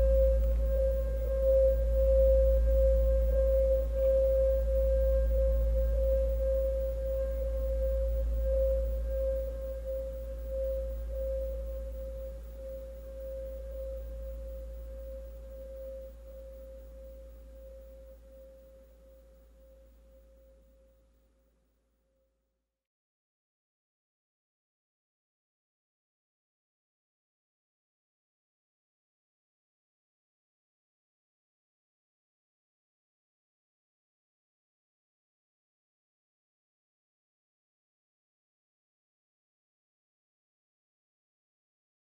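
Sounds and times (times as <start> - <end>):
deep low hum: 0.0 - 20.3
pulsing pure ringing tone: 0.0 - 21.4.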